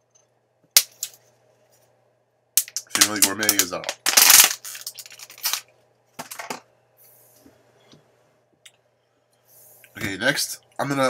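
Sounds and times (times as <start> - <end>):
plastic bottle crinkling: 2.7 - 6.6
plastic rustling: 2.9 - 6.6.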